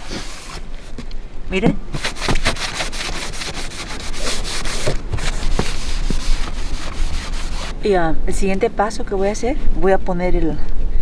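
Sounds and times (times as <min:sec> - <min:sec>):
rag rubbing on metal frame: 0:02.0 - 0:07.8.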